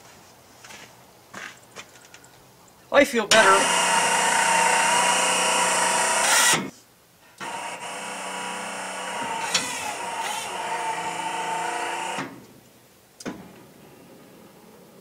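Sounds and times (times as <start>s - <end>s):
hydraulic pump motor whining: 3.3s - 6.7s, 7.4s - 12.4s.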